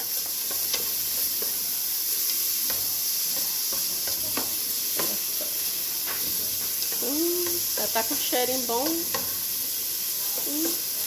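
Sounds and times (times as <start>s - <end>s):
onion sizzling in oil: 0.0s - 11.0s.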